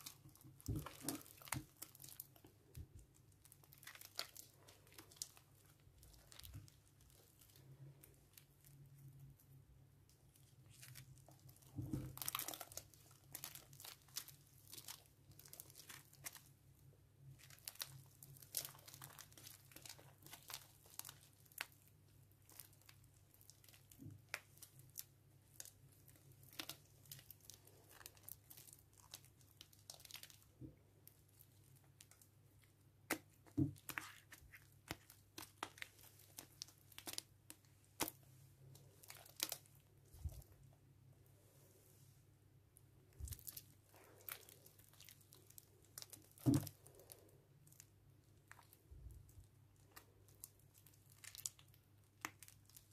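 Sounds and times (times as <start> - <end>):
slime crackling and popping: 0.0 - 40.7, 43.0 - 52.9.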